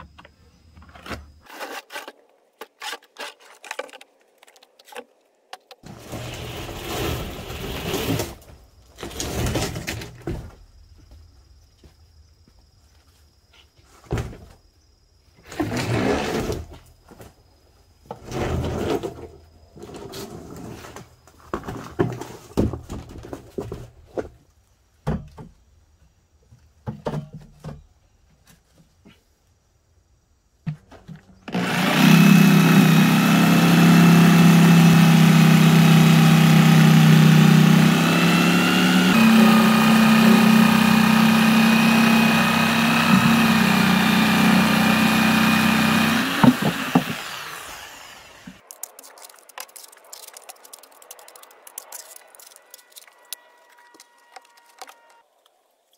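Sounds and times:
electric power tool running: 31.5 - 48.6.

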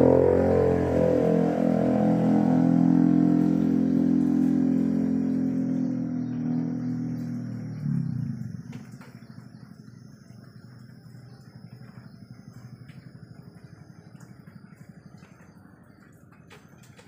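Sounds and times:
low pitched sound: 0.0 - 8.7.

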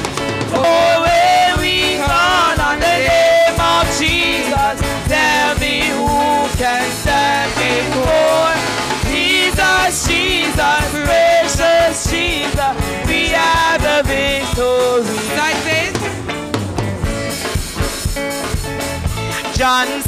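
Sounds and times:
bass: 0.0 - 20.0
steady drum beat: 0.0 - 20.0
gospel chorus singing: 0.5 - 15.9.

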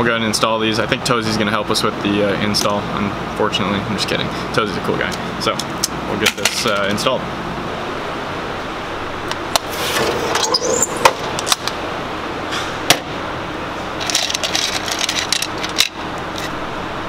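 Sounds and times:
metal drawer scraping open: 9.6 - 11.6
connectors rattling and clicking: 14.0 - 16.5.

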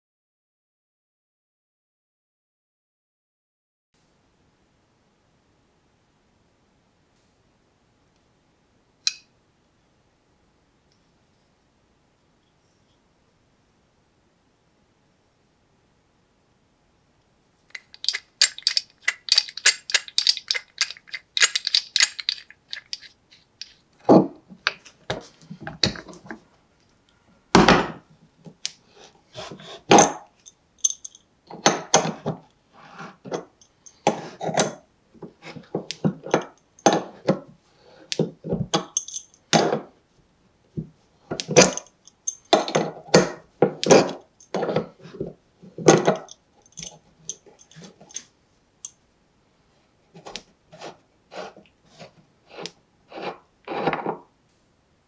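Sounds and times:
wrench clicking: 17.7 - 23.8
steel parts knocking and clunking: 17.7 - 26.4.

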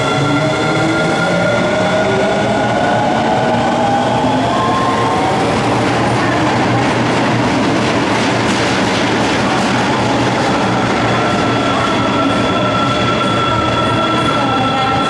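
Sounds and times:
train running through station: 0.0 - 15.0.

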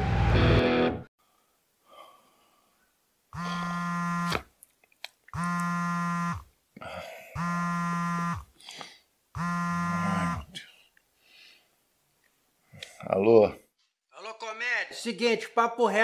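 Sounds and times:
phone vibrating on hard surface: 3.4 - 4.4, 5.4 - 6.5, 7.4 - 8.5, 9.4 - 10.5.

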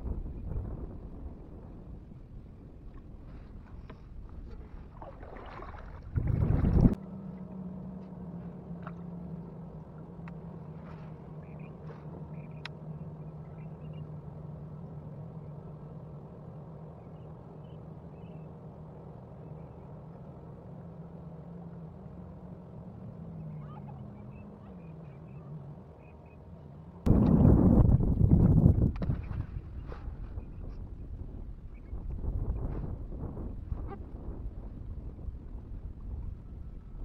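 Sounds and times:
wind rushing on microphone: 0.0 - 7.0, 27.1 - 37.0
steady low hum: 0.0 - 37.0
water gurgling against hull: 4.8 - 7.0.

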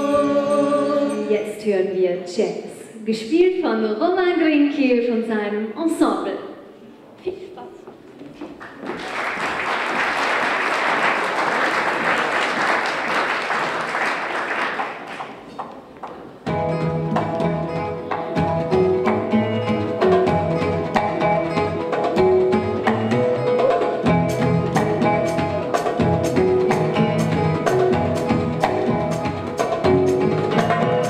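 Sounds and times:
audience applause: 8.6 - 15.6
hand percussion: 15.1 - 31.0
plucked string instrument: 16.4 - 31.0.

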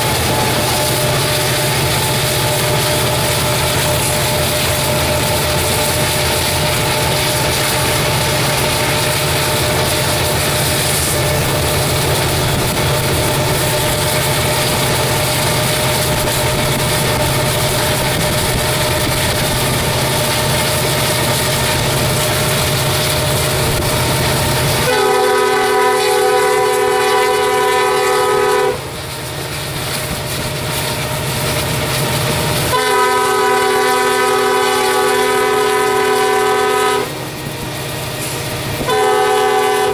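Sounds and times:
locomotive engine and wheels rumbling: 0.0 - 39.9
train air horn: 24.8 - 29.0, 32.7 - 37.3, 38.8 - 39.9.

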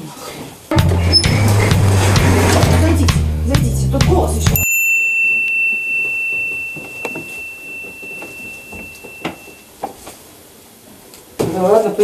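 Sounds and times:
high ringing tone: 4.5 - 9.8.

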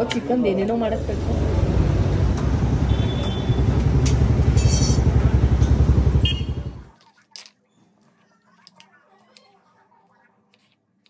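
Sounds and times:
motorcycle engine running: 1.1 - 6.9.

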